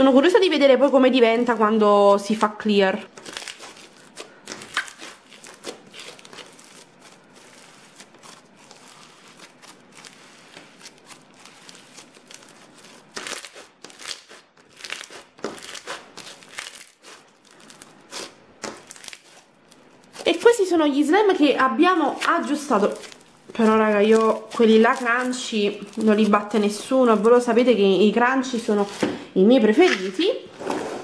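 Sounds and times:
slime clicking and crackling: 3.1 - 20.6.

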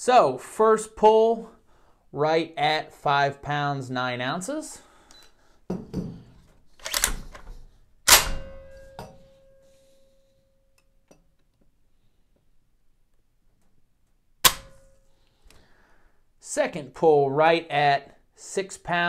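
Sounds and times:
shotgun action metallic clack: 8.1 - 8.7.

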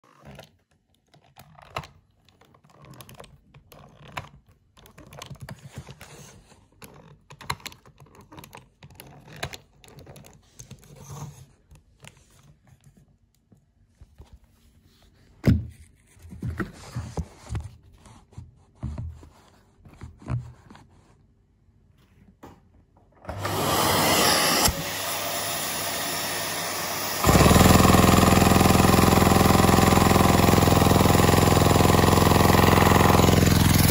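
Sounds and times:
plastic parts clicking: 0.1 - 6.1, 6.7 - 11.0
vacuum cleaner running: 23.2 - 33.9.

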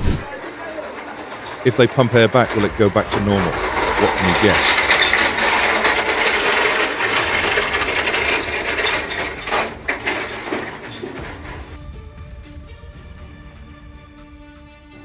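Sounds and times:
steel tank crackling and creaking: 0.0 - 11.8.

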